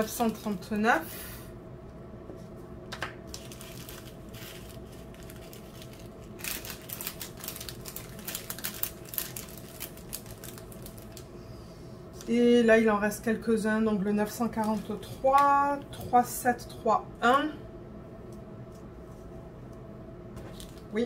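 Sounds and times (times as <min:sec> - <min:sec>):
plastic bags crinkling: 0:03.3 - 0:11.3, 0:20.4 - 0:21.0.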